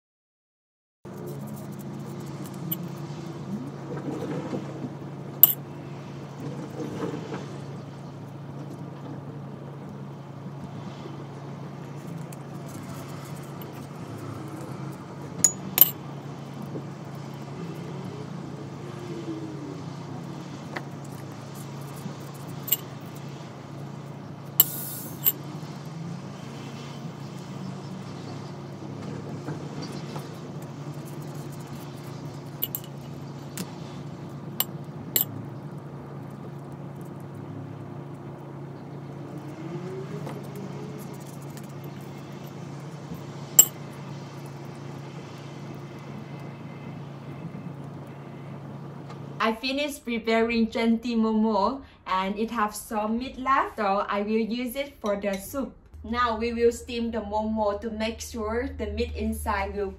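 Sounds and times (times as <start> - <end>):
ceramic dishes clinking: 32.6 - 32.9.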